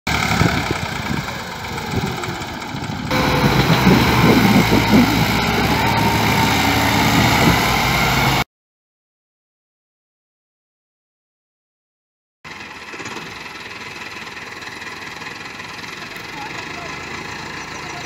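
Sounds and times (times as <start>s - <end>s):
tractor diesel engine labouring: 0.1s - 8.4s, 12.5s - 18.0s.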